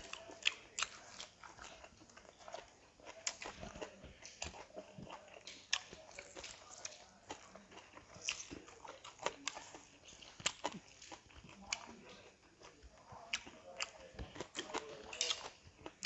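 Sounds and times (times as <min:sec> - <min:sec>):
wet chewing and lip-smacking: 0:00.0 - 0:16.0.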